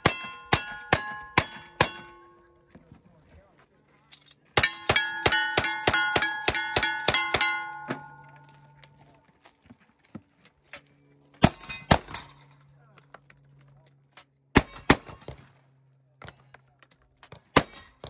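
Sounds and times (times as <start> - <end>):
steel plates ringing: 0.0 - 2.4, 4.6 - 8.7.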